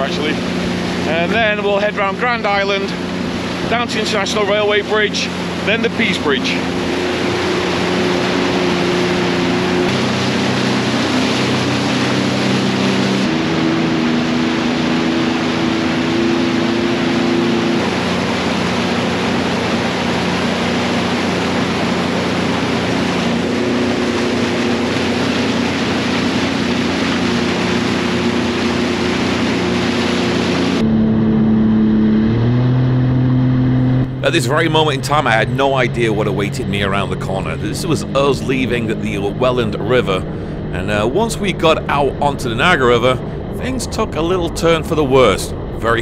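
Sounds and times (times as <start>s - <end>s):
rush of wind and water spray: 0.0s - 30.8s
jet ski engine drone: 0.0s - 46.0s.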